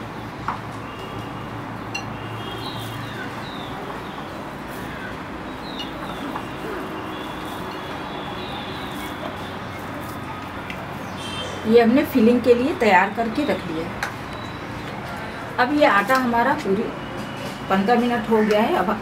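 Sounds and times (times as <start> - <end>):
small birds chirping: 1.8 - 11.8, 13.2 - 15.2.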